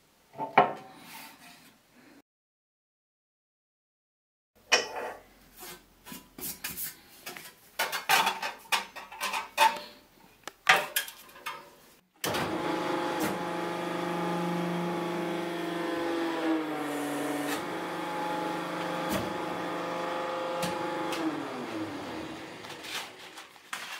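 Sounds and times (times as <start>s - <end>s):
press motor humming: 12.3s - 22.9s.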